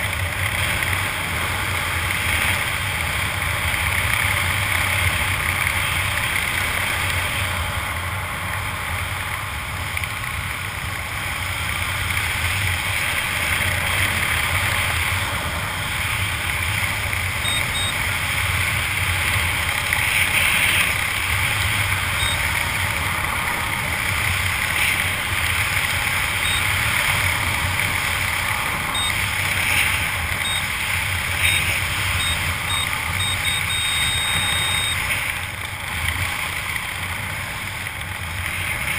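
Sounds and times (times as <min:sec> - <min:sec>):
high electronic beeps: 0:17.4 - 0:18.0, 0:22.2 - 0:22.4, 0:26.4 - 0:26.7, 0:28.9 - 0:29.3, 0:30.4 - 0:30.8, 0:31.4 - 0:35.1.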